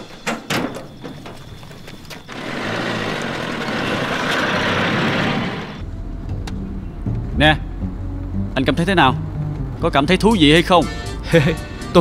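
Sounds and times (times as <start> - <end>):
low engine hum: 2.2 - 9.9
truck driving by: 2.2 - 11.9.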